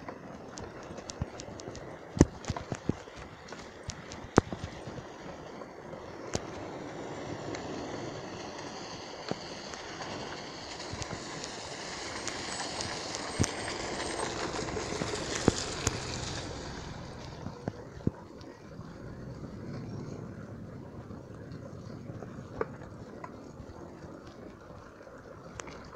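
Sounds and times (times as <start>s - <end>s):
bike tyres hissing through mud: 2.5s - 23.2s.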